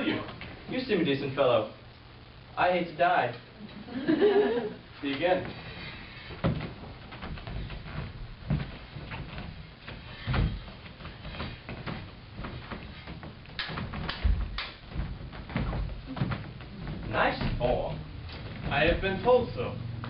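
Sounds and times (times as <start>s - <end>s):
feet thumping on stage floor: 5.5s - 20.0s.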